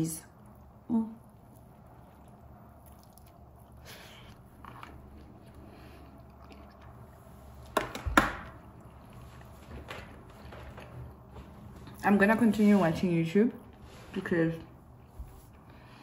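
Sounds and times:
quiet chewing: 0:00.4 - 0:07.7, 0:08.6 - 0:09.8.

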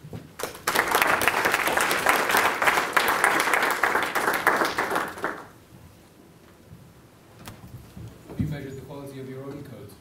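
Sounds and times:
audience applauding: 0:00.4 - 0:05.6.

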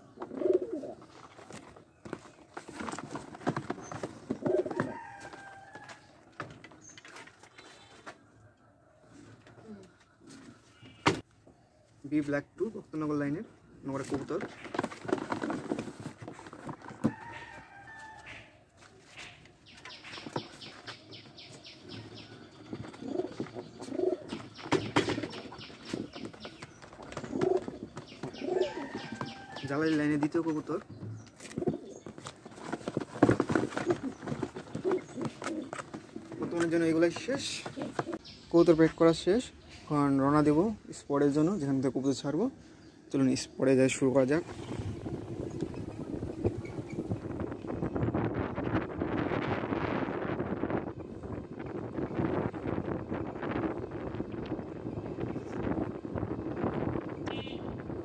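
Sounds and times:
pigeons cooing: 0:00.0 - 0:05.3, 0:09.0 - 0:11.1, 0:19.1 - 0:29.7, 0:31.3 - 0:38.4
knocks and scuffling on wooden box: 0:00.1 - 0:08.2, 0:14.0 - 0:18.1, 0:18.8 - 0:38.4
pigeons flapping wings: 0:00.3 - 0:05.5, 0:22.2 - 0:30.6, 0:31.4 - 0:38.2.

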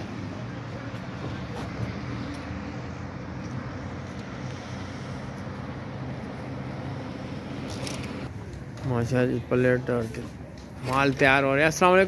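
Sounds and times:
low engine hum: 0:00.0 - 0:08.8
traffic noise: 0:00.0 - 0:12.0.

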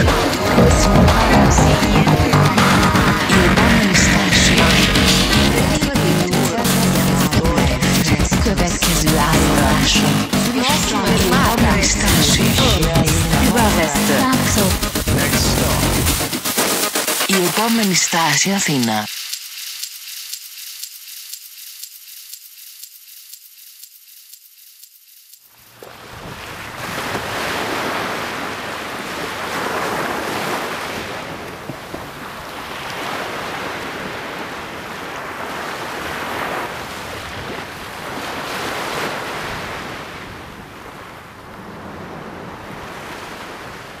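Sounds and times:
sea surf breaking on shore: 0:00.0 - 0:19.7, 0:25.6 - 0:44.0
high crackling hiss: 0:14.8 - 0:25.8.

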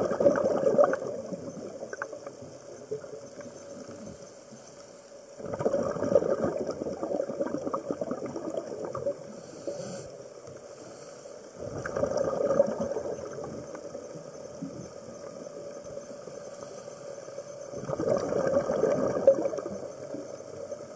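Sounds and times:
exhaled bubbles underwater: 0:00.0 - 0:04.0, 0:05.4 - 0:09.4, 0:11.6 - 0:16.0, 0:17.6 - 0:20.9
regulator inhalation hiss: 0:03.4 - 0:05.4, 0:09.2 - 0:11.7, 0:15.8 - 0:17.8.

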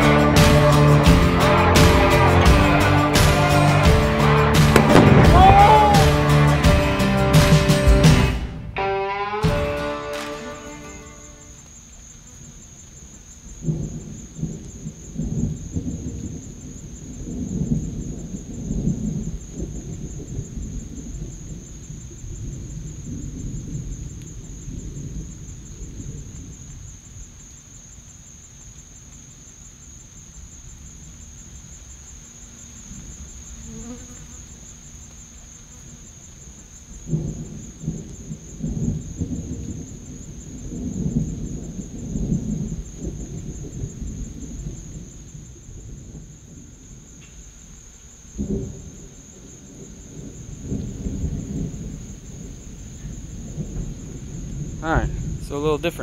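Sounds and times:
distant thunder rumbling: 0:04.6 - 0:06.7, 0:13.4 - 0:27.5, 0:36.8 - 0:56.0
high insect buzz: 0:08.7 - 0:55.4.

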